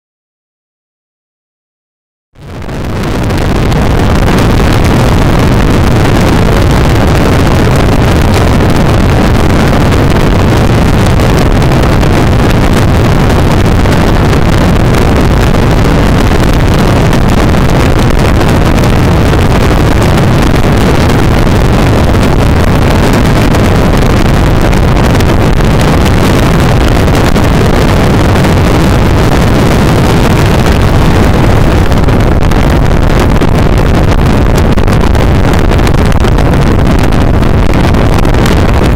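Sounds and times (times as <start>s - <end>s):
wind rushing over microphone: 2.4s - 38.9s.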